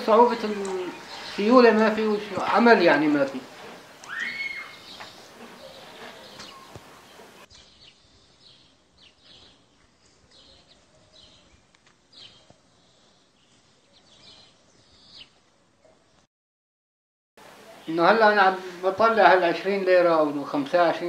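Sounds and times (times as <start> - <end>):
faint street ambience: 0.0 - 16.3, 17.4 - 21.0
small birds chirping: 0.0 - 16.3.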